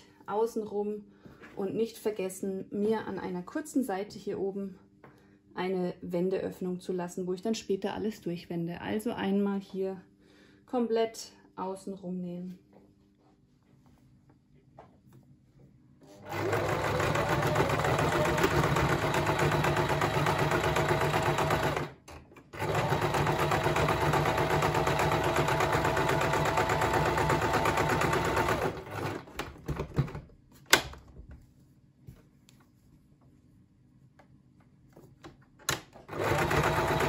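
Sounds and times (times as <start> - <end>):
sewing machine stitching: 16.2 - 30.1, 35.8 - 37.0.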